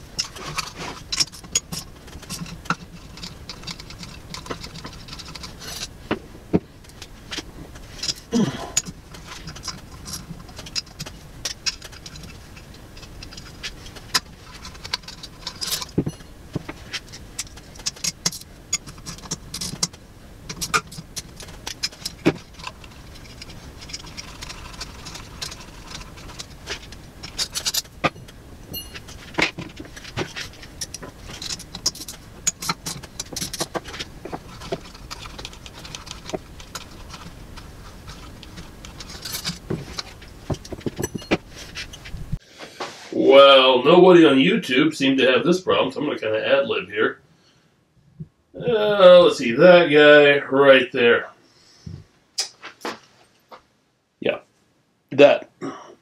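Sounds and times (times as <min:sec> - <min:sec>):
metallic clicks and rattles: 0:00.0 - 0:06.2, 0:06.8 - 0:42.4.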